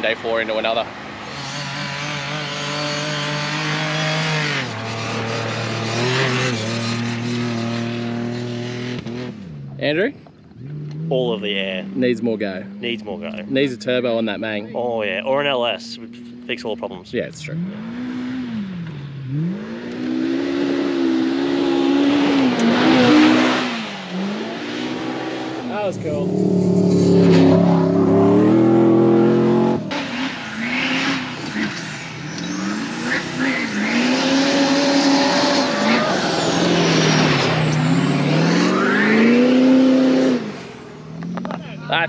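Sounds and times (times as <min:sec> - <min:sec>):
buggy engine running hard: 0:00.0 - 0:42.0.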